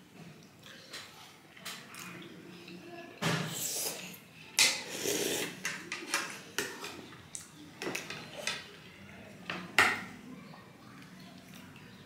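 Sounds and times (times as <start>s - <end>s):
slurping broth from a spoon: 3.5s - 4.2s, 4.8s - 5.7s.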